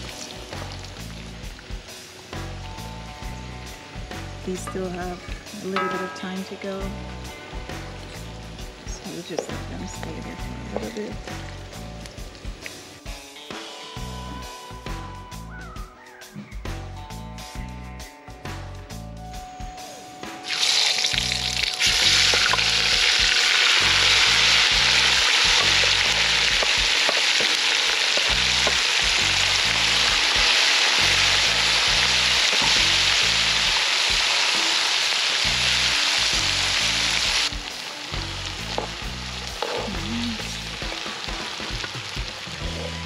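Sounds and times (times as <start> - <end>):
vegetables sizzling in oil: 0.0 - 14.2, 20.4 - 43.0.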